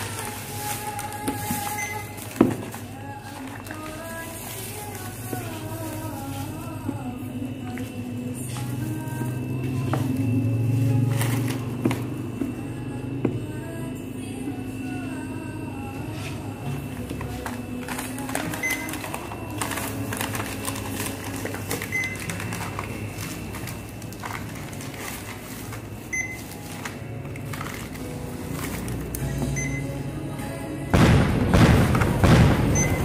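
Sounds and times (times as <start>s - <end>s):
plastic bag rustling: 0.0s - 12.2s, 16.1s - 29.5s
items handled at counter: 0.0s - 13.5s, 15.8s - 30.0s
background music with held tones: 0.0s - 33.0s
barcode scanner beeping: 1.4s - 2.2s, 16.8s - 23.9s, 26.0s - 26.9s, 29.2s - 30.2s, 32.6s - 33.0s.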